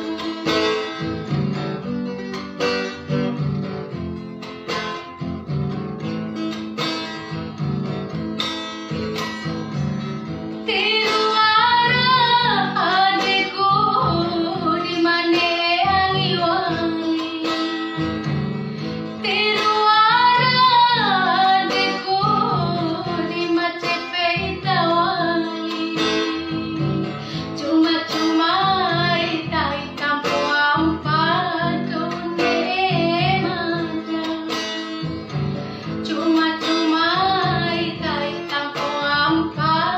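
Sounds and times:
woman singing: 0.0s - 1.4s, 10.6s - 18.4s, 19.0s - 39.9s
acoustic guitar chords: 0.0s - 39.9s.

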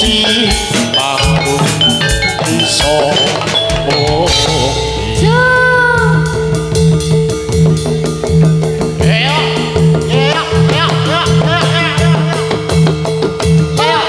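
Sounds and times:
gamelan percussion and drums: 0.0s - 14.0s
sliding melody note: 0.3s - 11.2s
sustained low tone: 3.8s - 11.7s.

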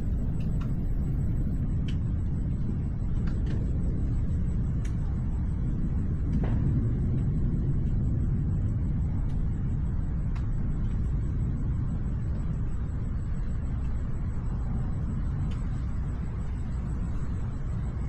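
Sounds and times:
low thunder rumble: 0.0s - 18.0s
faint sharp ticks: 4.8s - 5.0s, 10.2s - 11.3s, 12.2s - 15.9s.

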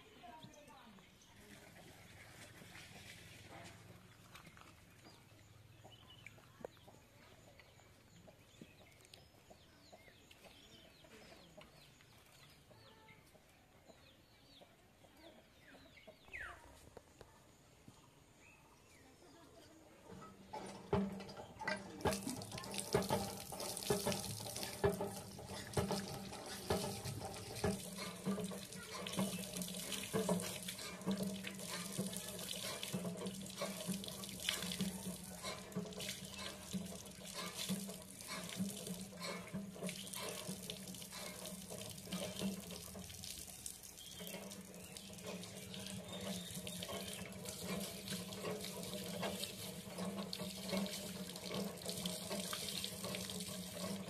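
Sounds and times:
water running and splashing: 20.1s - 54.0s.

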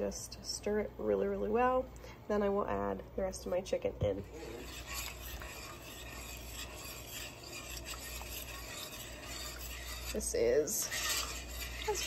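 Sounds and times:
spoon scraping a pot: 4.1s - 12.0s.

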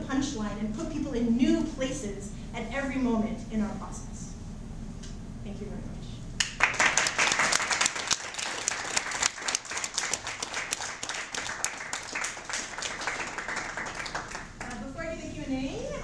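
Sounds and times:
audience applauding: 6.4s - 14.9s.

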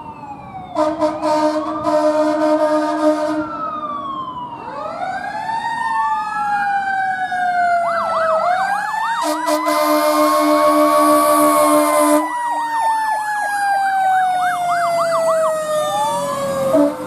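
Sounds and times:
electronic siren wailing: 0.0s - 17.0s
fire engine air horn blaring: 0.6s - 3.7s, 9.1s - 13.7s, 14.8s - 17.0s.

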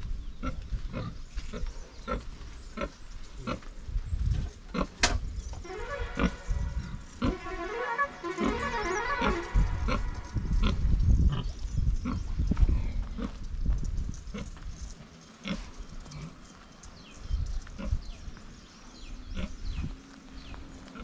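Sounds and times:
high falling chirps: 5.6s - 10.8s.

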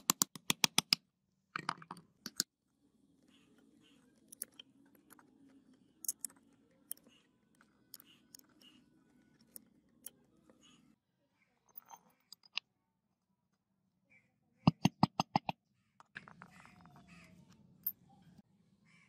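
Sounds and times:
metal parts clicking: 6.0s - 10.2s.

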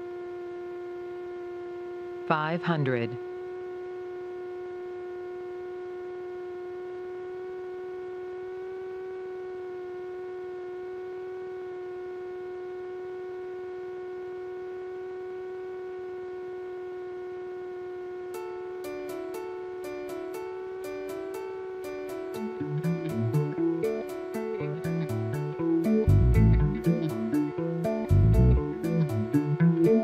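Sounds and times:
plucked guitar music: 18.4s - 30.0s.

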